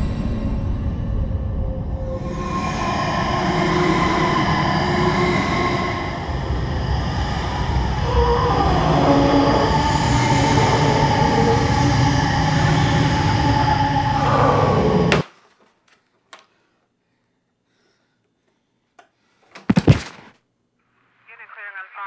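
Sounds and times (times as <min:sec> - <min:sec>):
low rumbling drone: 0:00.0 - 0:15.2.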